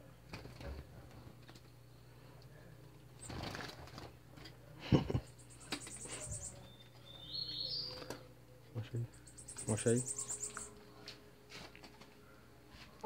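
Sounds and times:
high bird chirp: 5.3 - 8.1, 9.1 - 10.8
small bird twittering trill: 5.3 - 8.1, 9.1 - 10.8.

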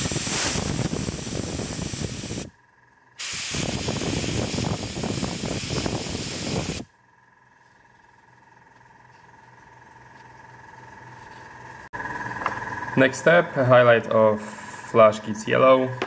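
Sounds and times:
airbrush spraying hiss: 0.0 - 2.5, 3.2 - 6.9.

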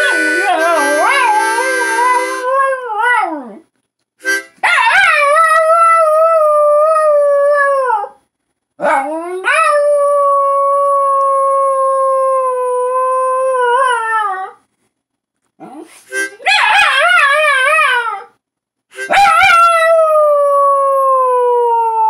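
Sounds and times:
harmonica playing: 0.0 - 2.5, 4.2 - 4.6, 16.1 - 16.4, 18.9 - 19.3
dog howling: 0.0 - 3.6.

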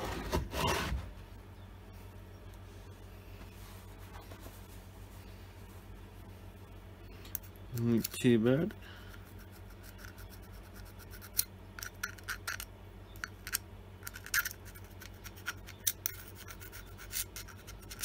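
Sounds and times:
steel pick scraping metal: 9.1 - 18.0.

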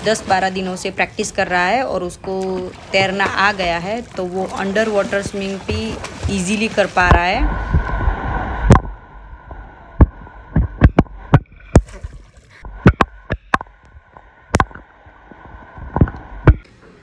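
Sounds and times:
muffled underwater rush: 2.6 - 16.6
sharp knocks and pops underwater: 4.5 - 8.0, 8.7 - 9.0, 10.0 - 14.9, 15.8 - 16.7.

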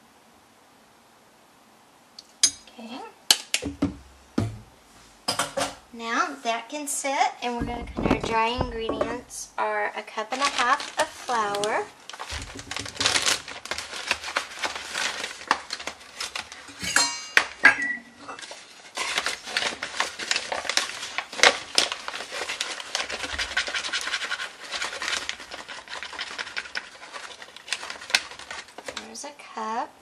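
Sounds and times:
ringing metallic clink: 2.4 - 2.7, 16.8 - 18.1
plastic bag rustling and crinkling: 7.4 - 29.4.

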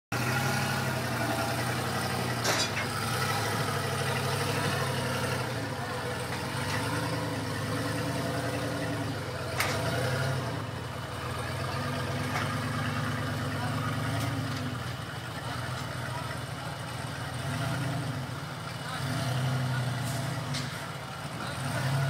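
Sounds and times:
truck diesel engine running: 0.1 - 22.0.

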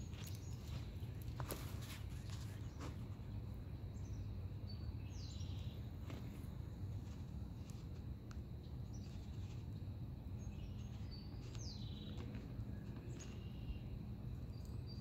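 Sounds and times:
low background rumble: 0.0 - 15.0
faint bird chirps: 1.5 - 6.2, 10.4 - 15.0.

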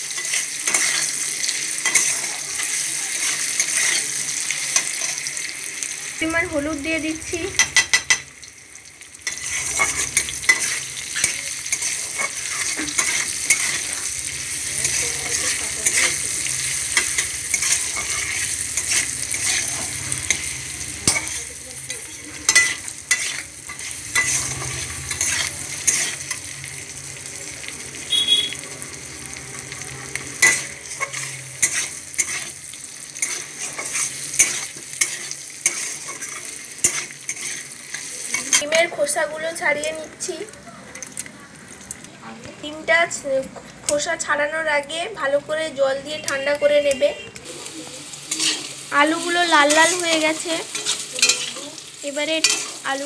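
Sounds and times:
potatoes sizzling in oil: 0.0 - 53.0
metal spatula scraping pan: 0.1 - 4.2, 9.2 - 26.5, 30.1 - 39.0, 48.2 - 53.0.

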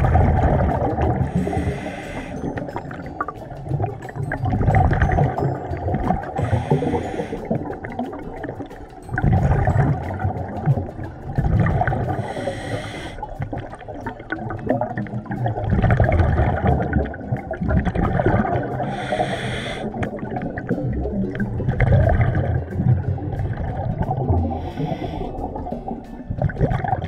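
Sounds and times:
exhaled bubbles rumbling: 0.0 - 27.0
hissing regulator inhalation: 1.2 - 2.7, 6.3 - 7.8, 12.1 - 13.4, 18.8 - 20.0, 24.4 - 26.0.

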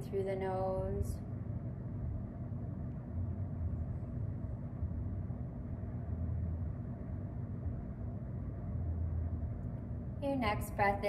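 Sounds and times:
low background rumble: 0.0 - 11.0
low hum: 0.0 - 11.0.

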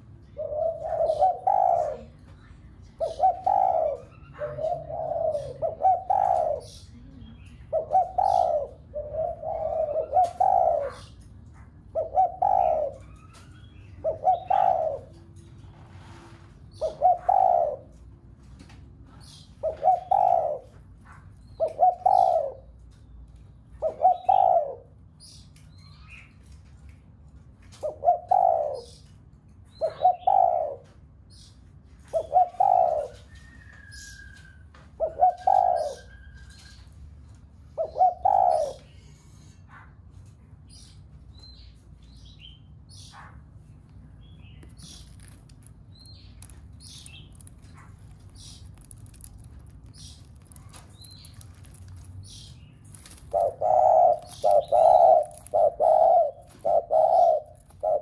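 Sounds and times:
dove cooing: 0.0 - 2.3, 3.0 - 16.1, 16.7 - 18.3, 19.2 - 20.9, 21.5 - 22.8, 23.8 - 25.2, 27.7 - 29.2, 29.8 - 31.0, 32.0 - 36.9, 37.6 - 39.6, 46.4 - 58.0.

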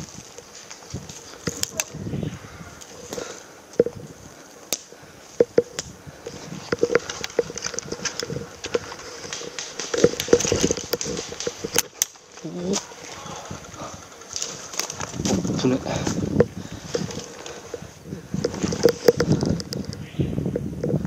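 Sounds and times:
clothing and gear rustling: 0.0 - 2.1, 6.2 - 19.6.

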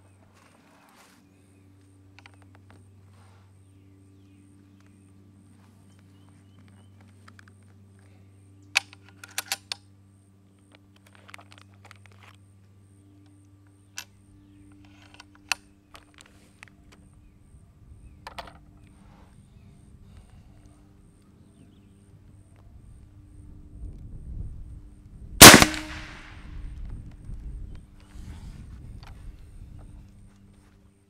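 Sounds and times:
air rifle clicks and clacks: 8.8 - 9.8, 25.4 - 26.4.

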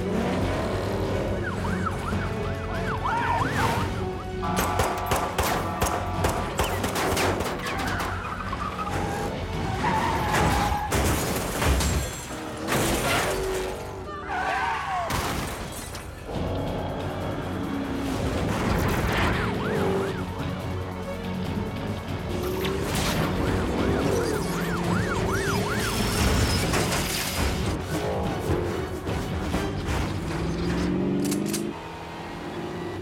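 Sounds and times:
police sirens wailing: 0.0 - 11.0, 12.0 - 15.2, 16.0 - 33.0
dramatic orchestral music: 0.0 - 31.8
car engines: 0.0 - 33.0.

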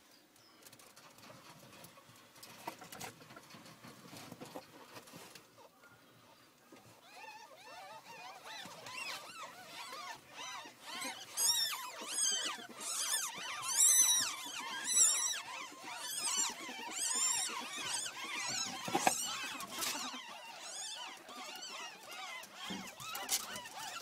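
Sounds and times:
ferret kits squeaking: 7.0 - 24.0.

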